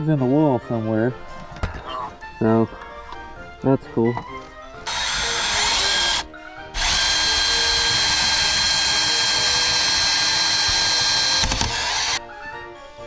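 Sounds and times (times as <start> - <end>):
faint background music: 0.0 - 13.0
power drill boring through wood: 4.8 - 12.2.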